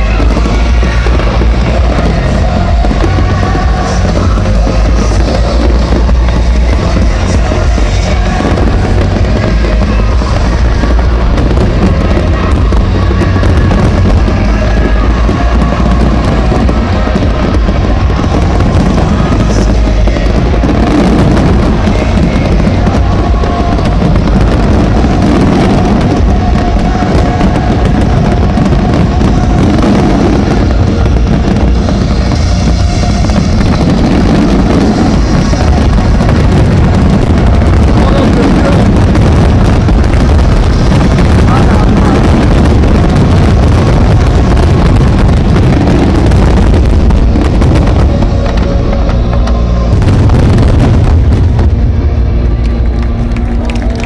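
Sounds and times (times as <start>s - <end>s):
fireworks bursting and crackling: 0.0s - 54.0s
loud music: 0.0s - 54.0s.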